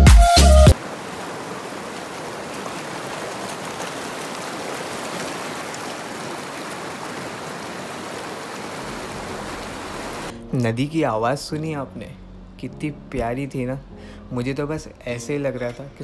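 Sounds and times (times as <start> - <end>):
background music with beat: 0.0 - 0.8
river rushing over rapids: 0.7 - 10.3.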